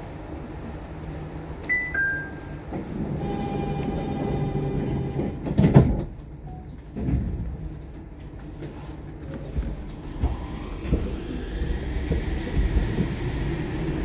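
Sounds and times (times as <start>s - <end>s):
two-note door chime: 1.7s - 2.5s
sliding doors humming shut: 2.7s - 6.3s.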